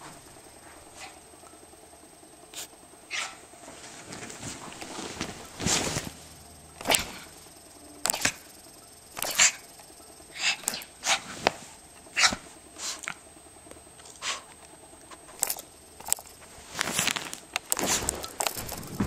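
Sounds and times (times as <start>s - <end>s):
dog scuffling: 3.1s - 7.2s
sharp clicks: 6.7s - 10.9s.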